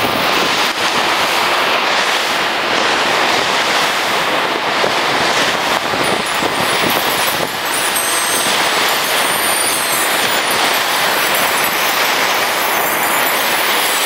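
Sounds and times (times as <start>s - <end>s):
ocean surf breaking on beach: 0.0s - 14.0s
wind buffeting microphone: 0.0s - 14.0s.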